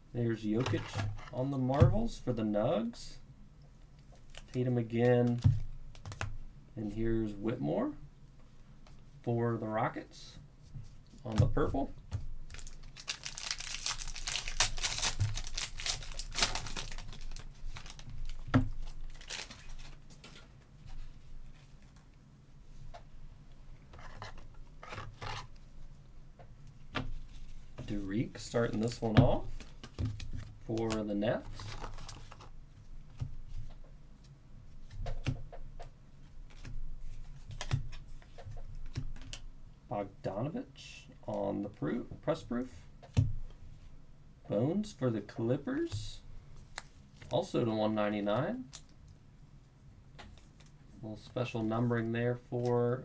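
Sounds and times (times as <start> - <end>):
foil wrapper crinkling: 12.5 - 20.0.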